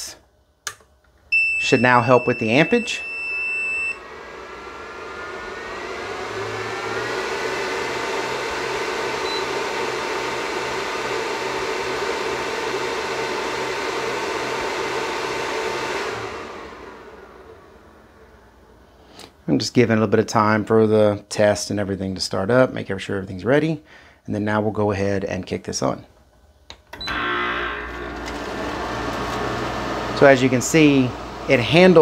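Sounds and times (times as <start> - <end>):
cooling fan whine: 0.0 - 19.1, 27.0 - 32.0.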